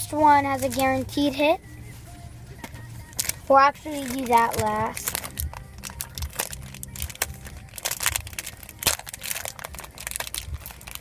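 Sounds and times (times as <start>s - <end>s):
wrapper crinkling as torn open: 4.0s - 11.0s.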